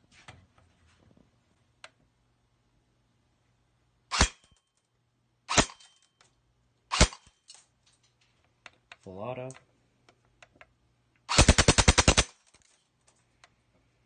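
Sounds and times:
airsoft gun firing shots: 0:04.1 - 0:04.4, 0:05.5 - 0:05.8, 0:06.9 - 0:07.3, 0:11.3 - 0:12.4.

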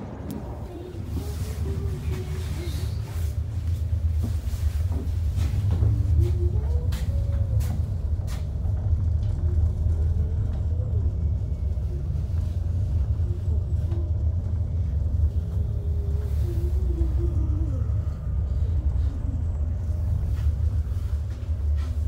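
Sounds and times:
cable car cabin rumble: 0:00.0 - 0:22.0.

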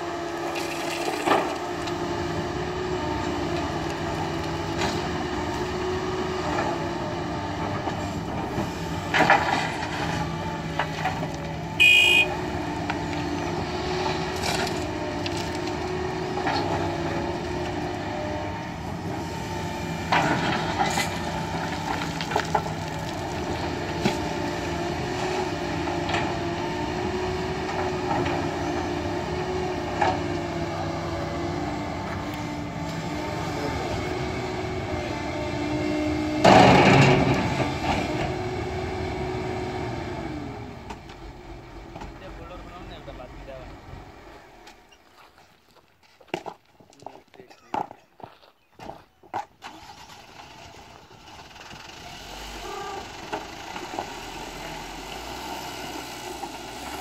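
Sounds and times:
excavator diesel engine running: 0:00.0 - 0:45.6, 0:49.6 - 0:57.0
high-pitched horn beep: 0:11.8 - 0:12.4.

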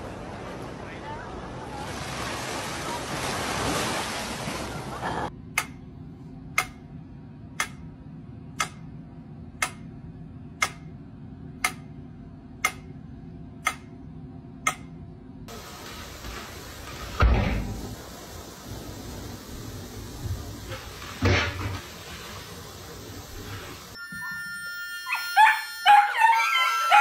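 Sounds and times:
surf: 0:00.0 - 0:05.3
wind: 0:00.0 - 0:27.0.

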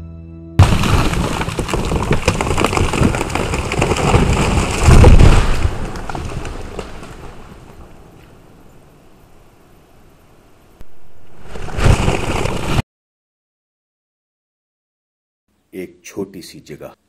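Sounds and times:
explosion blast: 0:00.6 - 0:07.0
dense crackling: 0:00.6 - 0:08.2, 0:10.8 - 0:12.8
debris falling: 0:00.6 - 0:08.5, 0:10.9 - 0:12.8
rumble: 0:10.7 - 0:12.8.

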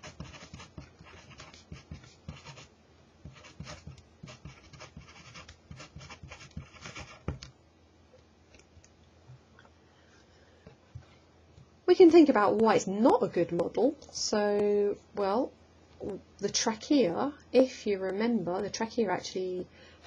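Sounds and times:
pen scratching on paper: 0:00.0 - 0:07.4.

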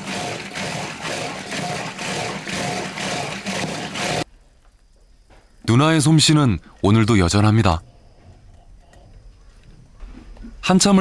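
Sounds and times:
wooden churning stick strokes: 0:00.0 - 0:04.3.

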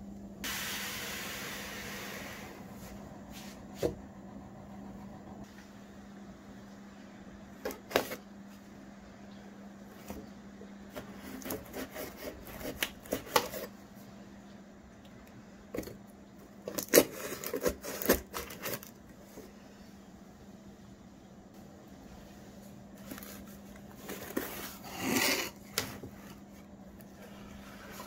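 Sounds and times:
scissor blade slitting packing tape: 0:16.7 - 0:18.9.

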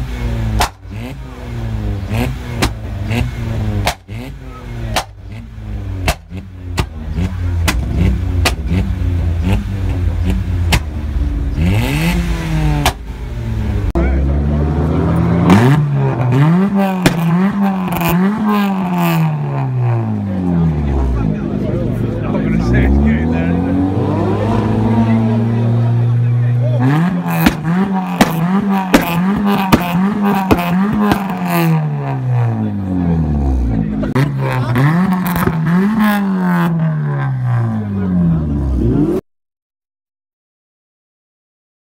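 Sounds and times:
car engine revving: 0:00.0 - 0:39.2
exhaust pops and bangs: 0:00.5 - 0:00.9, 0:02.5 - 0:02.9, 0:03.8 - 0:04.2, 0:04.9 - 0:05.4, 0:06.0 - 0:08.7, 0:10.2 - 0:11.0, 0:16.9 - 0:18.2, 0:27.2 - 0:31.8.

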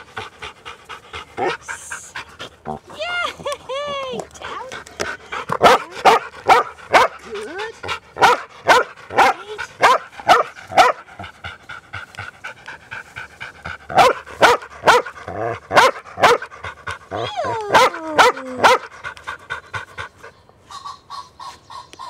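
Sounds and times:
dog barking: 0:05.6 - 0:07.2, 0:08.2 - 0:11.0, 0:14.0 - 0:15.1, 0:15.7 - 0:16.5, 0:17.8 - 0:18.9.

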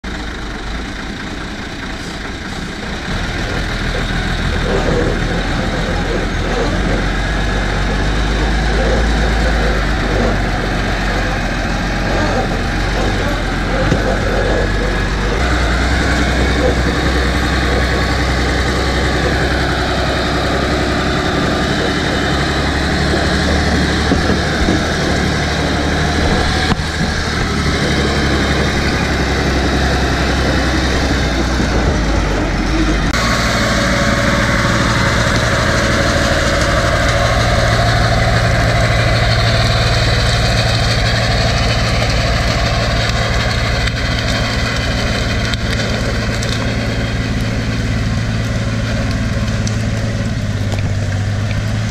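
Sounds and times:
truck diesel engine running: 0:00.0 - 0:51.9.

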